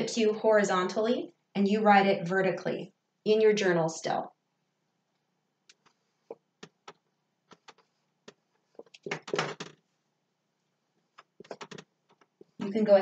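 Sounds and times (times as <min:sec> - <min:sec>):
marker tapping and scraping on whiteboard: 0:05.7 - 0:09.9, 0:11.0 - 0:12.6.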